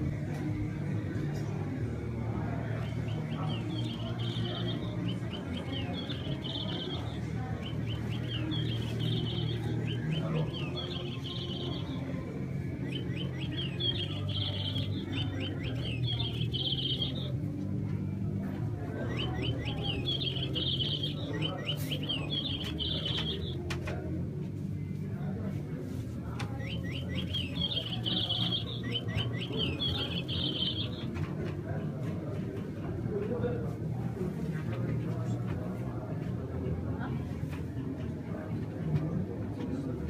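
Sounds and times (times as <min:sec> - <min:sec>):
bird chirping and trilling: 0:02.8 - 0:17.4, 0:19.0 - 0:23.6, 0:26.6 - 0:31.2.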